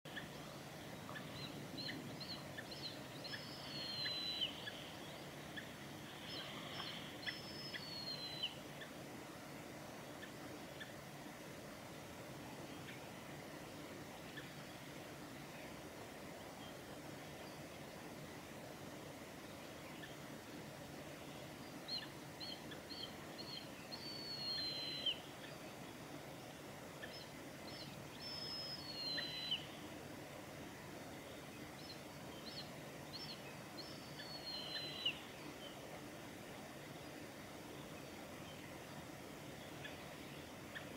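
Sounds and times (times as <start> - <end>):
eagle whistled calls: 1.1 - 4.8, 6.2 - 8.6, 22.0 - 25.2, 27.2 - 29.7, 32.5 - 35.2.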